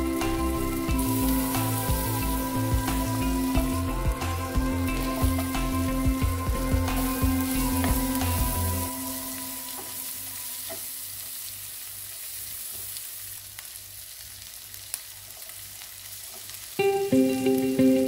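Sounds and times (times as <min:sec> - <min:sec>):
background music: 0:00.0 - 0:10.6, 0:16.8 - 0:18.0
vegetables sizzling in oil: 0:00.0 - 0:18.0.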